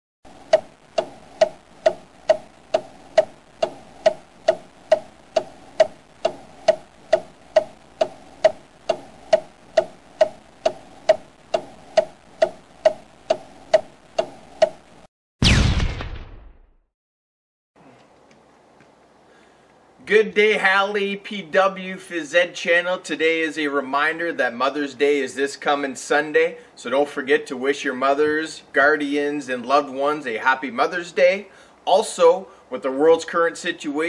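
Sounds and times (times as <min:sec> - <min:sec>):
clock ticking: 0:00.3 - 0:15.1.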